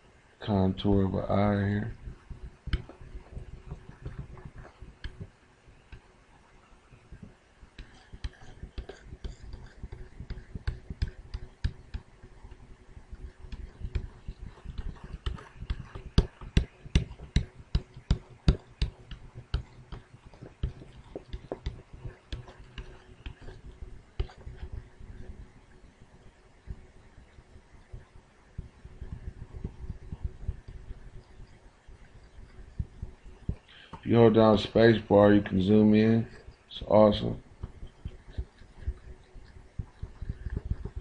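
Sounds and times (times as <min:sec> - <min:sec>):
stylus tapping on touchscreen: 0:13.5 - 0:23.6.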